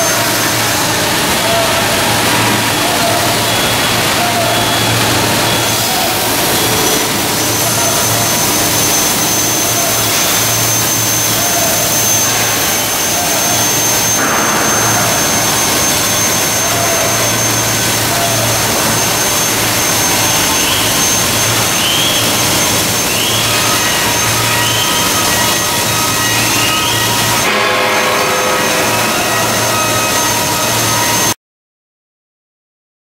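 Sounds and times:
milling machine running: 0:00.0 - 0:31.3
thin high whine: 0:00.0 - 0:31.4.

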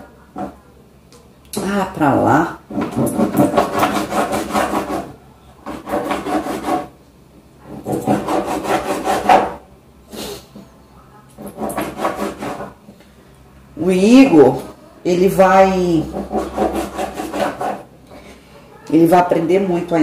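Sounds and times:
rasping rubbing strokes: 0:02.9 - 0:05.1, 0:05.7 - 0:06.9, 0:07.8 - 0:09.5, 0:11.4 - 0:12.8, 0:16.0 - 0:17.9.

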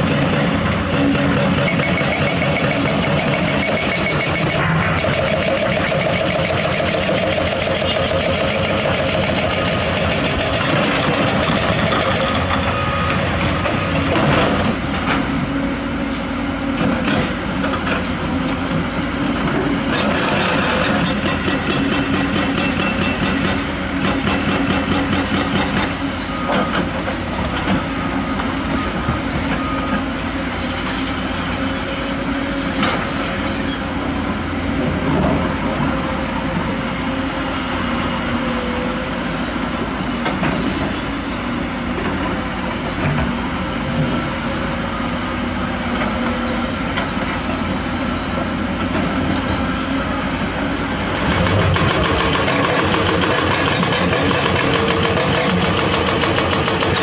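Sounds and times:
hydraulic rock breaker hammering: 0:00.0 - 0:15.4, 0:19.4 - 0:27.8, 0:51.0 - 0:57.0
excavator diesel engine running: 0:00.0 - 0:57.0.

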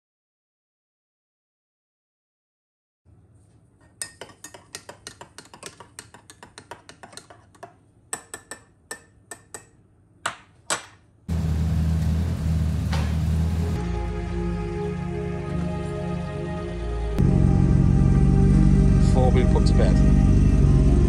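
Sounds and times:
teaspoon clinking in mug: 0:04.0 - 0:09.7
loud low rumble: 0:16.1 - 0:21.0.

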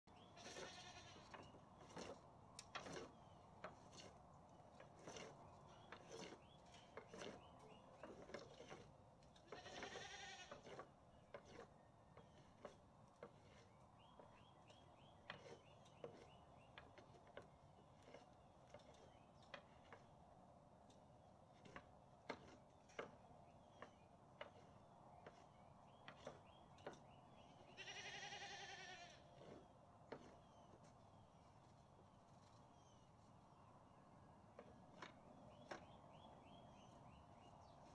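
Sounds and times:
stick scraping deck boards: 0:00.2 - 0:20.2, 0:21.5 - 0:33.2, 0:34.5 - 0:37.9
goat bleating: 0:00.4 - 0:01.3, 0:09.4 - 0:10.7, 0:27.7 - 0:29.3.

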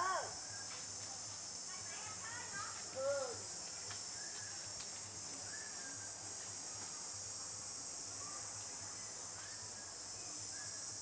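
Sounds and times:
forest insects chorus: 0:00.0 - 0:11.0.

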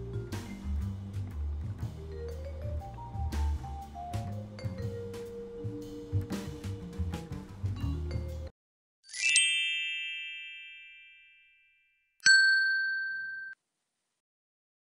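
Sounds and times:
background music: 0:00.0 - 0:08.5
bright chime: 0:09.1 - 0:13.6
ding: 0:09.2 - 0:13.6.

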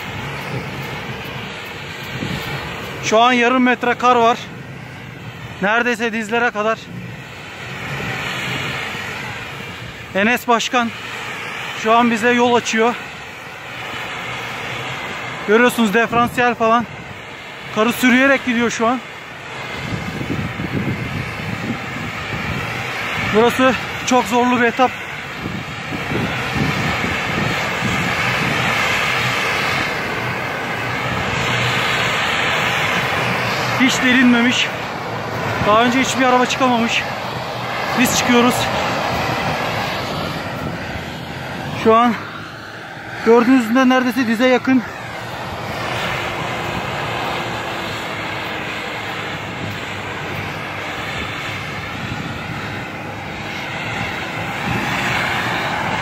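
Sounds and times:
truck dragging through snow: 0:00.0 - 0:56.0
truck engine under heavy load: 0:00.0 - 0:56.0.

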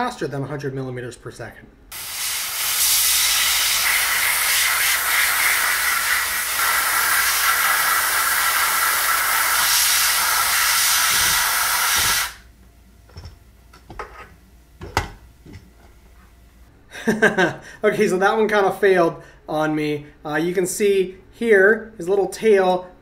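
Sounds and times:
compressed air hissing: 0:01.9 - 0:12.5.

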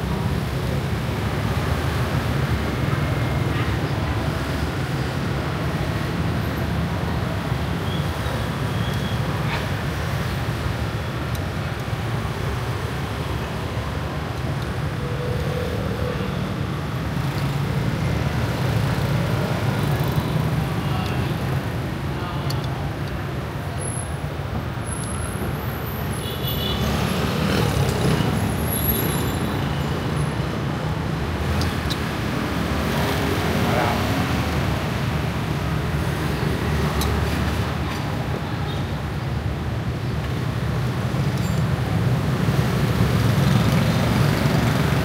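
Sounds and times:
road traffic rumble: 0:00.0 - 0:45.0.

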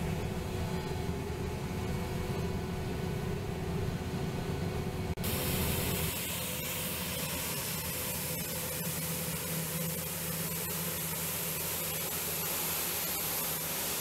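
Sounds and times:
combine harvester drone: 0:00.0 - 0:14.0
loud even hiss: 0:05.2 - 0:14.0.

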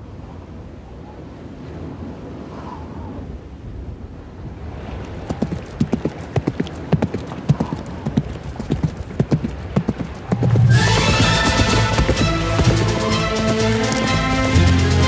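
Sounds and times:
horse hooves galloping: 0:05.2 - 0:15.0
film score music with deep bass: 0:10.7 - 0:15.0.

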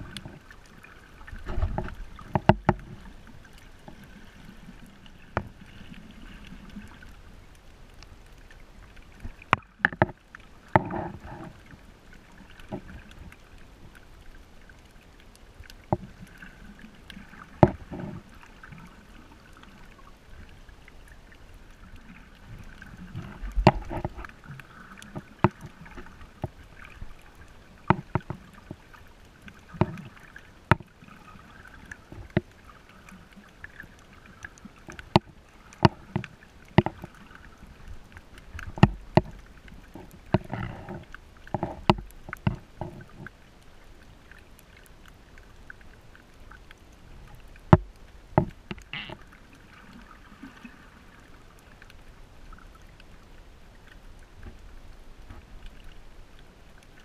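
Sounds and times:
underwater clicks and knocks: 0:00.0 - 0:00.6, 0:01.2 - 0:07.1, 0:07.9 - 0:14.0, 0:14.8 - 0:16.5, 0:17.1 - 0:18.9, 0:22.0 - 0:43.4, 0:44.3 - 0:50.1, 0:54.2 - 0:56.0
underwater water wash: 0:00.0 - 0:57.0.

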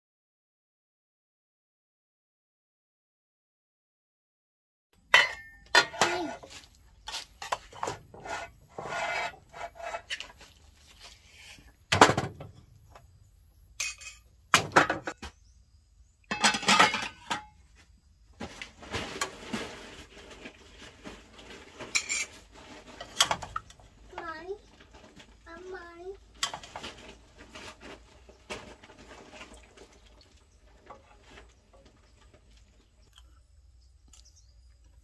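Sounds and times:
plates and pans clinking: 0:05.1 - 0:06.5, 0:13.8 - 0:15.2, 0:16.3 - 0:17.6
metal spoon scraping pot: 0:05.2 - 0:10.4, 0:21.8 - 0:23.7.

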